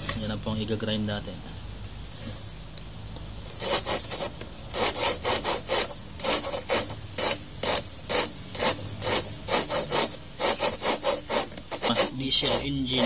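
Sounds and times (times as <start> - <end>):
valve lapping gritty scrape: 3.4 - 13.0.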